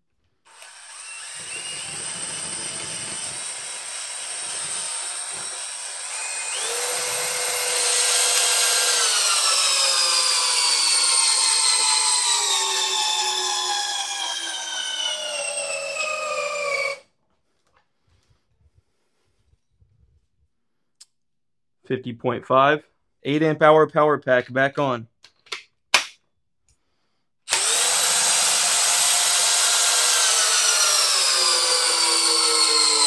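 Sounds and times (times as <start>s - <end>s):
cordless drill motor whining: 0.5s - 17.0s, 27.5s - 33.0s.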